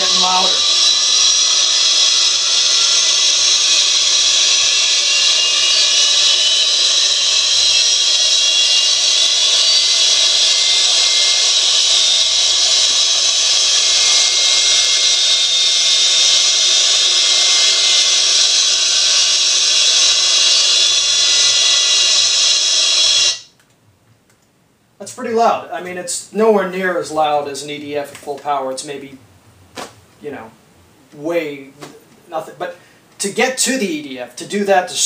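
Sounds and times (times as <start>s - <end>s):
jet engine whine through small speakers: 0.0s - 23.6s
speaker hiss: 0.0s - 23.6s, 24.8s - 35.0s.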